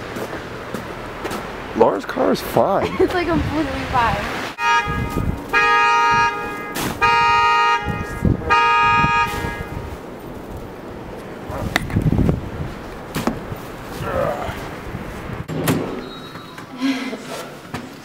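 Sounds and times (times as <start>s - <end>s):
car horn honking: 4.6s - 10.0s.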